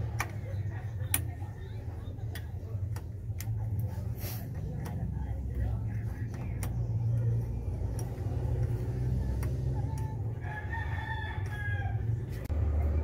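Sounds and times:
steady low hum: 0:00.0 - 0:13.0
sharp clicks: 0:06.2 - 0:10.4
rooster crowing: 0:10.3 - 0:12.4.

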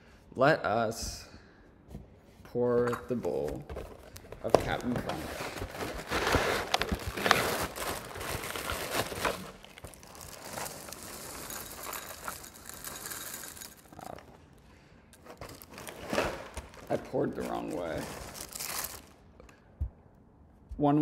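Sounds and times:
cardboard box and bag crinkling: 0:03.7 - 0:14.4, 0:15.2 - 0:19.2
cereal pouring into bowl: 0:09.8 - 0:14.2.

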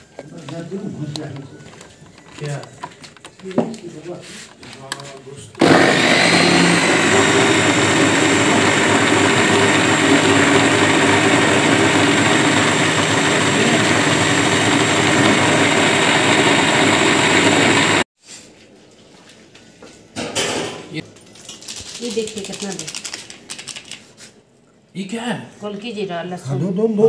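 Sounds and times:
mixer grinder motor whirring: 0:05.6 - 0:18.1.

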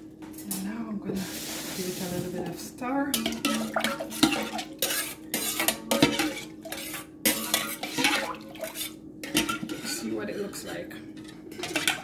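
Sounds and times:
metal spoon stirring in pot: 0:03.1 - 0:12.0.

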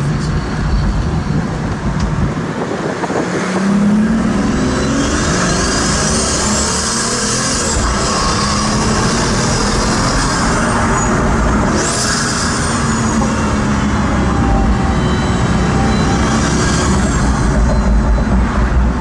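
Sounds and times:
car engine cruising: 0:00.0 - 0:19.0.

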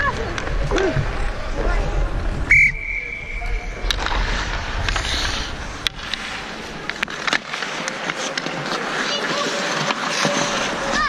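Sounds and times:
skates and sticks scraping on ice: 0:00.0 - 0:02.3, 0:03.2 - 0:11.0
referee's whistle blast: 0:02.5 - 0:03.6.

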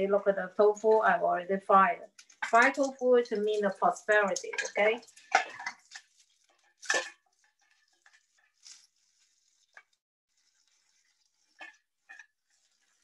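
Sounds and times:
faint sizzle: 0:00.0 - 0:13.0
metal pot clatter: 0:02.2 - 0:08.9.

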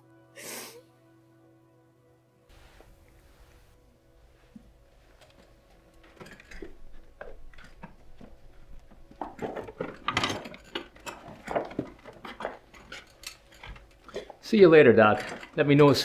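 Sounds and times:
stretcher rattling and clanking: 0:05.9 - 0:16.0.

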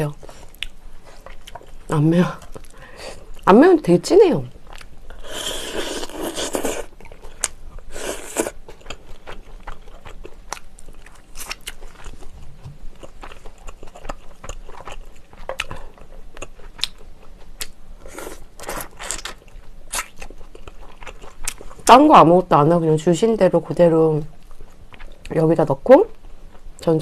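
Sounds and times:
person chewing meat off bones: 0:04.6 - 0:21.9.

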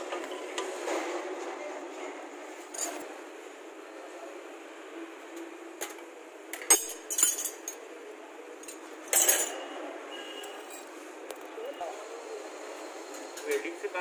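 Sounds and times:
metal spanners clinking: 0:06.6 - 0:07.8, 0:08.6 - 0:09.6.

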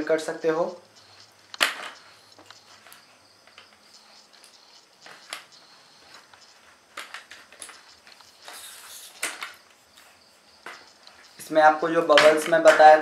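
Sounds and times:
faint high hiss: 0:00.0 - 0:12.5
tripod clicks and taps: 0:00.9 - 0:09.6, 0:10.6 - 0:11.5.

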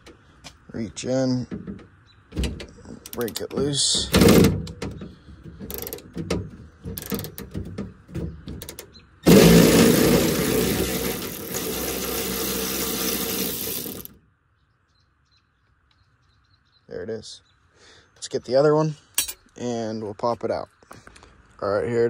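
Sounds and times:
cordless electric ratchet spinning: 0:05.7 - 0:06.0, 0:09.3 - 0:14.2.

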